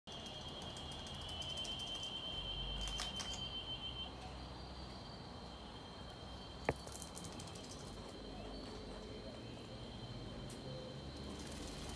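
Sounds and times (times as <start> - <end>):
insects trilling: 0.1 - 11.9.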